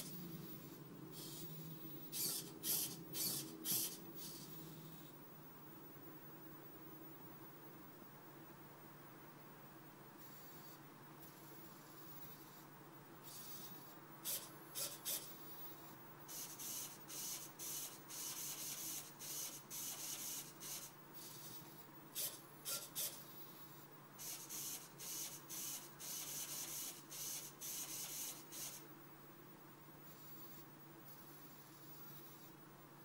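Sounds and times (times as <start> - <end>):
servo motors whirring: 0.0 - 5.1, 13.2 - 23.2.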